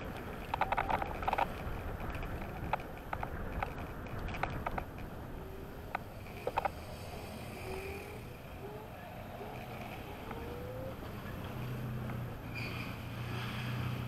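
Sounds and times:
road and wind rumble: 0.0 - 14.0
scooter motor whine: 4.6 - 13.0.

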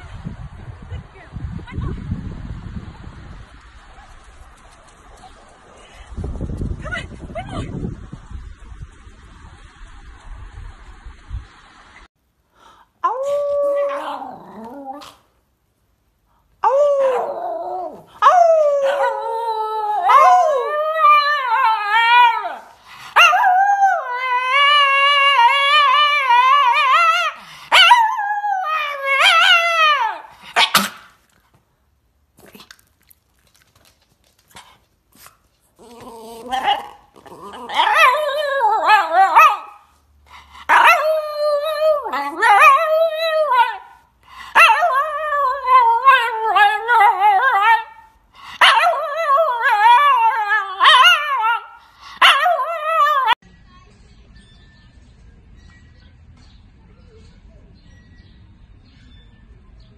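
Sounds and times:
dog howling: 35.8 - 39.8, 40.7 - 44.0, 48.6 - 53.4.

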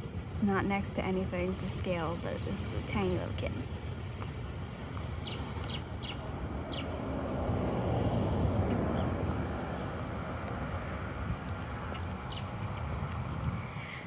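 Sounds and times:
road traffic passing: 0.0 - 14.0
bird chirps: 5.2 - 6.9.

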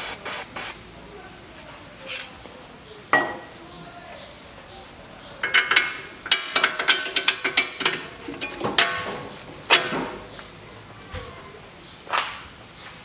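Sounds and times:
metal bolt clinks and knocks: 5.4 - 10.2, 12.1 - 12.8.

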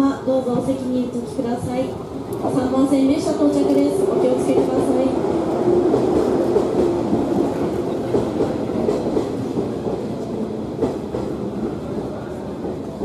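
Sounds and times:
train arriving: 0.0 - 13.0.

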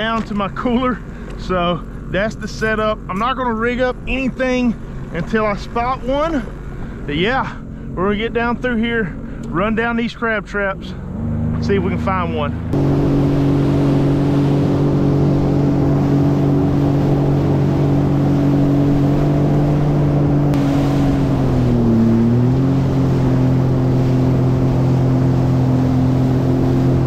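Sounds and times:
jet ski engine running: 0.0 - 27.0
water and wind rush: 11.1 - 27.0.

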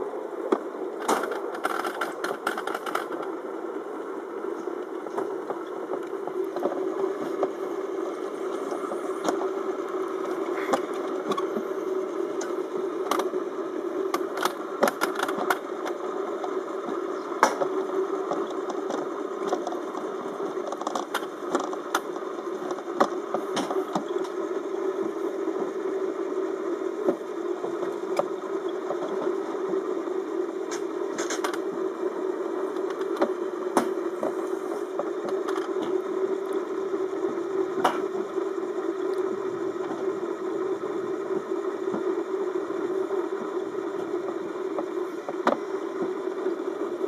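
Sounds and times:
sharp clicks and knocks: 18.3 - 24.4.

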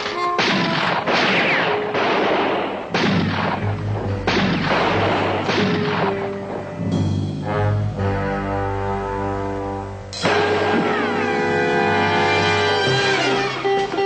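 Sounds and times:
gunshots with echo: 0.0 - 6.9
orchestral film score: 0.0 - 14.0.

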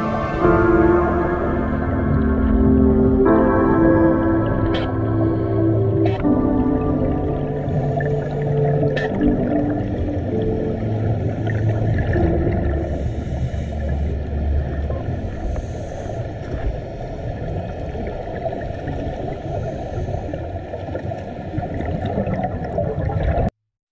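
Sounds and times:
low held tones: 0.0 - 15.6
muffled underwater rumble: 0.0 - 23.5
bubbling: 20.8 - 23.5.

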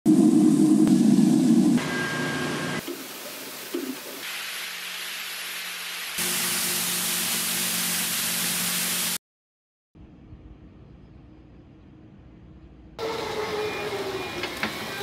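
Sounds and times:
water spraying onto tank: 2.8 - 9.2.

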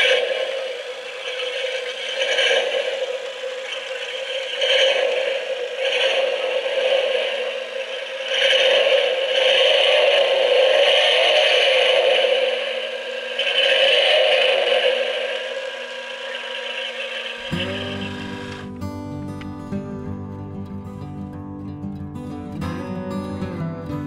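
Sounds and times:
small electric motor whirring: 15.7 - 18.8.

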